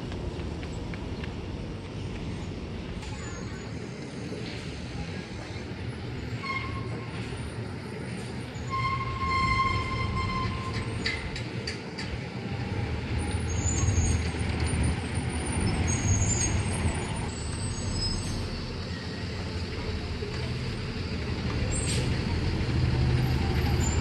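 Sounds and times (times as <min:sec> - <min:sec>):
vehicle engine rumble: 0:00.0 - 0:24.0
faint high squeals: 0:06.2 - 0:07.5, 0:08.5 - 0:11.0.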